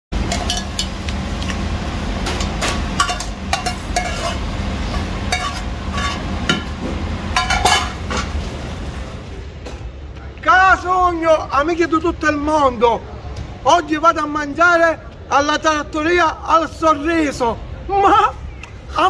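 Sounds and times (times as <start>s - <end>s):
steady low hum: 0.1s - 10.4s
dishes and cutlery clinking: 0.2s - 1.0s, 2.2s - 6.8s, 7.4s - 8.4s.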